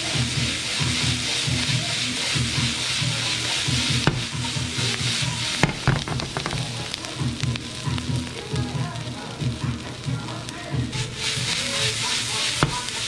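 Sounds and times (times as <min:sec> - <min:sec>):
vegetables sizzling in frying pan: 0:00.0 - 0:13.0
crackling pops: 0:03.7 - 0:08.0, 0:10.4 - 0:13.0
pan knocking on hob: 0:04.0 - 0:04.4, 0:05.6 - 0:06.8.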